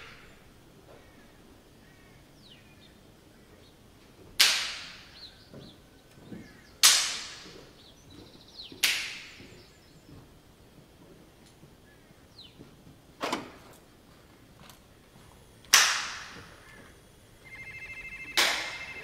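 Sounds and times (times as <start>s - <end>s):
sharp cracks: 4.4s - 5.1s, 6.8s - 7.6s, 8.8s - 9.4s, 15.6s - 16.8s, 18.4s - 18.8s.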